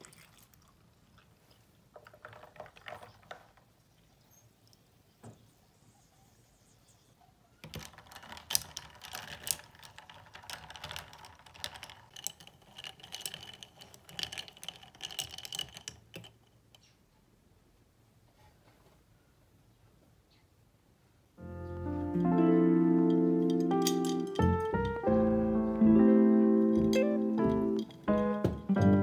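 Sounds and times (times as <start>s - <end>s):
ice and straw clinking in glass: 23.4s - 24.9s.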